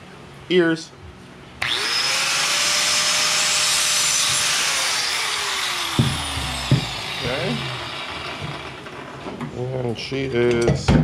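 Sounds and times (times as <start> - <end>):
angle grinder cutting steel: 1.6 - 9.2
sharp metal knocks: 5.8 - 7.6.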